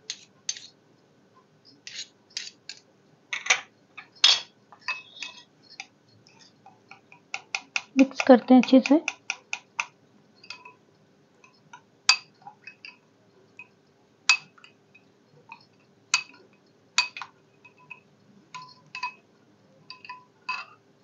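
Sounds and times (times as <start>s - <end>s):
metal spoon clinking in glass bowl: 10.4s - 10.8s, 17.0s - 19.2s, 19.9s - 20.8s.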